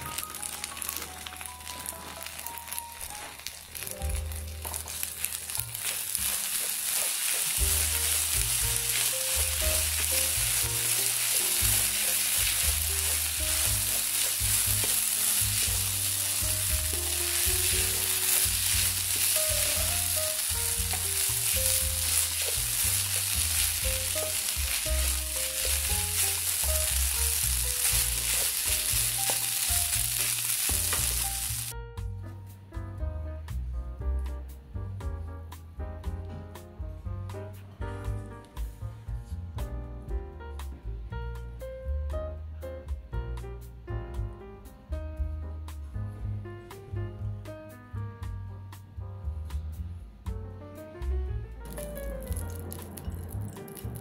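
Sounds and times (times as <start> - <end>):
wooden spoon stirring in pan: 0.0 - 31.7
rice sizzling in a frying pan: 0.0 - 31.8, 51.7 - 54.0
soft background music: 0.0 - 54.0.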